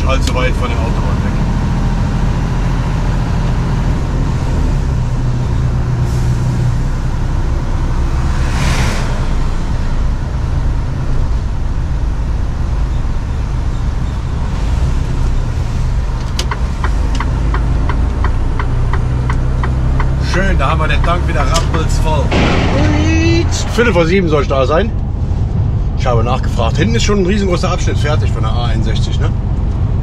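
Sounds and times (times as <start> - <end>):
truck engine running: 9.2 - 30.0
turn indicator ticking: 16.1 - 22.2.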